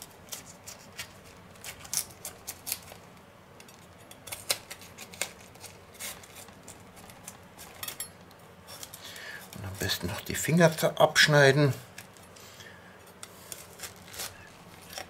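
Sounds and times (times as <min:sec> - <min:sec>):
knife crunching through cabbage: 0:00.0 - 0:03.0, 0:04.0 - 0:07.9, 0:13.1 - 0:15.0.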